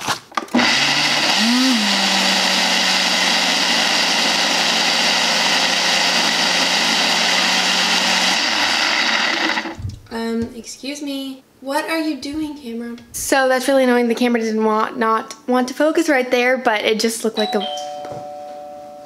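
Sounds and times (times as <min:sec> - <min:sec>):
blender motor running: 0:00.5 - 0:09.8.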